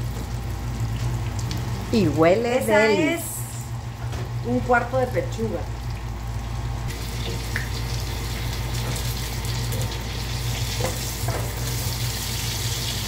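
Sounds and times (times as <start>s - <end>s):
low steady hum: 0.0s - 13.0s
chicken sizzling in oil: 5.8s - 13.0s.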